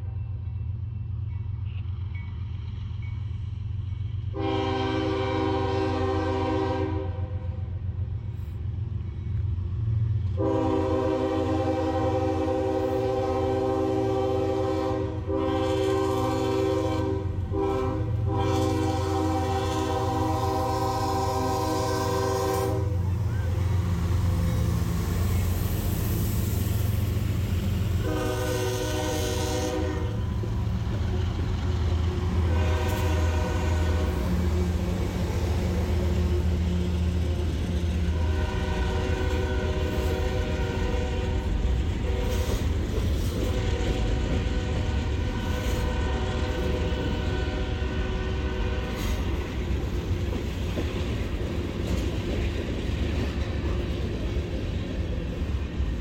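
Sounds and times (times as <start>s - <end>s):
diesel locomotive engines droning: 0.0s - 56.0s
locomotive horn blasts: 4.3s - 7.5s, 10.4s - 23.2s, 28.0s - 30.4s, 32.4s - 34.6s, 38.1s - 42.6s, 43.5s - 49.2s
train cars rattling on rails: 8.2s - 56.0s.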